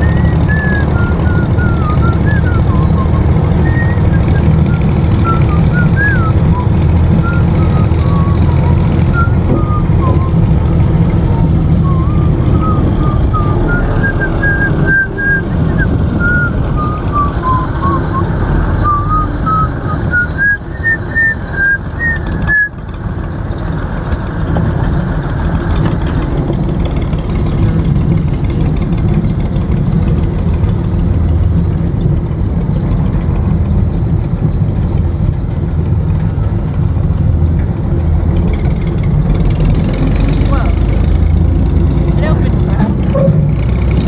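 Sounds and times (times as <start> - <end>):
high chirps and whistles: 0.0 - 22.8
wind and road noise rumble: 0.0 - 44.0.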